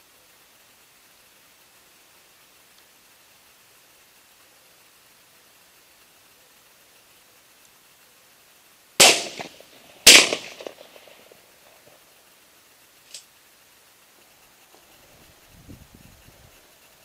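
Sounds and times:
shotgun shots with echo: 0:09.0 - 0:11.4.

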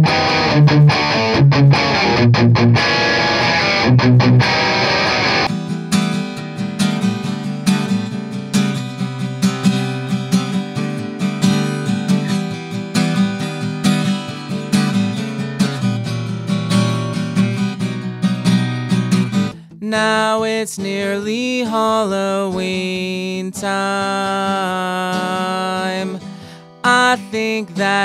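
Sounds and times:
distorted electric guitar: 0:00.0 - 0:05.6
acoustic guitar strumming chords: 0:00.0 - 0:28.0.

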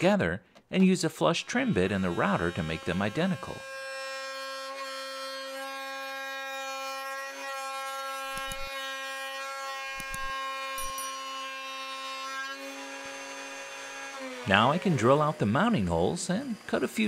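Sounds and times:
router high whine: 0:01.3 - 0:03.8, 0:08.0 - 0:08.8, 0:09.8 - 0:11.2, 0:12.6 - 0:17.0.

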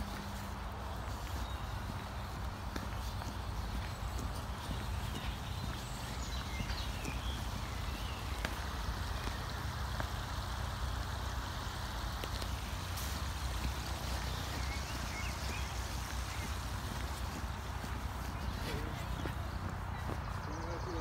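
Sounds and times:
even hiss: 0:03.4 - 0:19.2.

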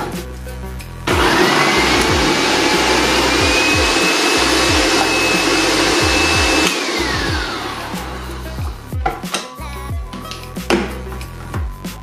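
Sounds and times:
food processor motor whine: 0:01.1 - 0:08.2.

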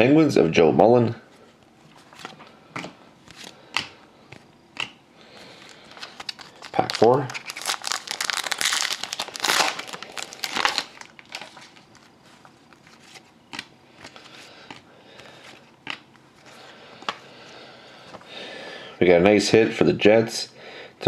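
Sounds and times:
cards clicking and rustling: 0:02.0 - 0:16.2
foil wrapper crinkling and tearing: 0:05.6 - 0:13.3.

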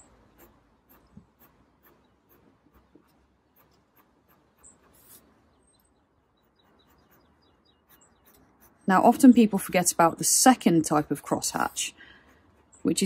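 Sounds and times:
pencil scratching on paper: 0:00.3 - 0:05.3, 0:06.4 - 0:09.1, 0:11.0 - 0:13.0.

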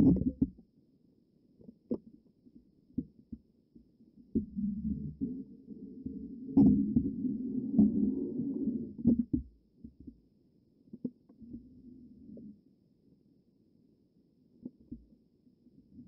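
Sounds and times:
muffled underwater rumble: 0:00.0 - 0:00.6, 0:04.2 - 0:10.1.

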